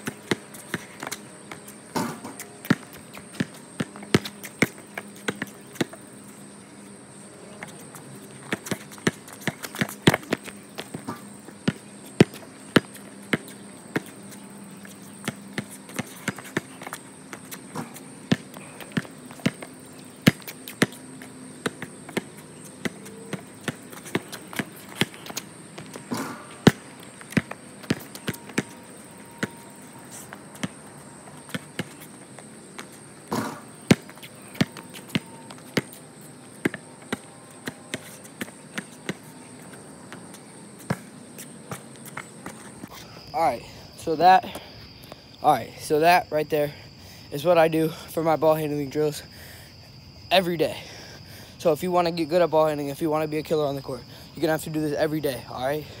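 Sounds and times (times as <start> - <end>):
basketball bouncing on concrete: 0.0 - 6.1, 7.6 - 14.4, 15.0 - 43.0.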